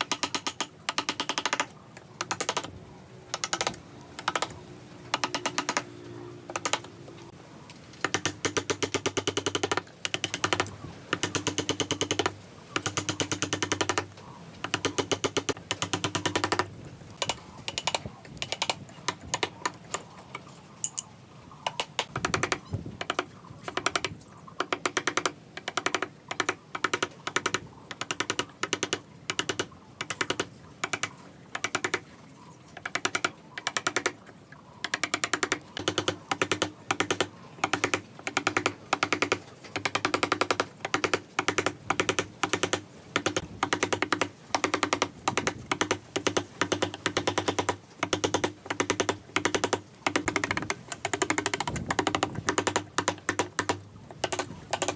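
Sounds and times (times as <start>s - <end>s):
chisel tapping into hardwood: 34.9s - 54.9s.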